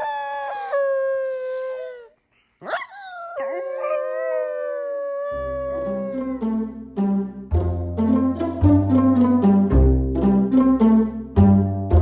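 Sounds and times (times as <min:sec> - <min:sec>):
dog howling: 0:00.0 - 0:06.4.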